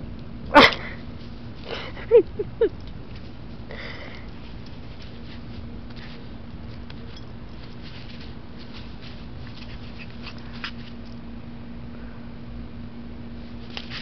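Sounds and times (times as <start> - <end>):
steady low hum: 0.0 - 14.0
puppy rustling in grass: 4.3 - 11.2, 13.4 - 14.0.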